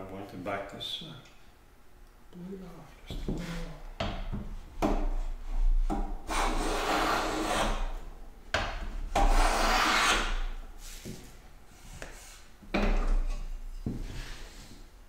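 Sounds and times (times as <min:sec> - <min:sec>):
hand plane hissing strokes: 0:06.3 - 0:07.8, 0:09.3 - 0:11.2.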